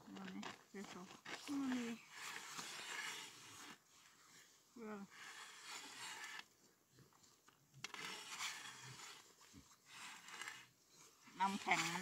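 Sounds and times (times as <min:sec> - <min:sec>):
auger blades scraping ice: 0:00.2 - 0:06.5, 0:07.8 - 0:12.0.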